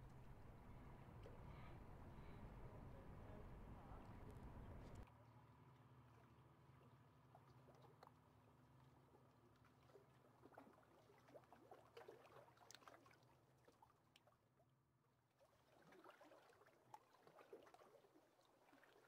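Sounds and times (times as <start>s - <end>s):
low hum: 0.0s - 5.0s.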